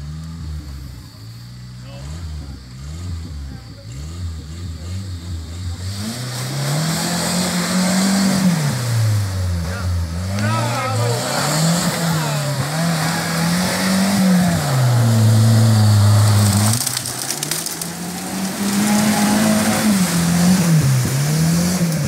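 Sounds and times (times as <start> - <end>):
engine revving hard: 1.8 - 22.0.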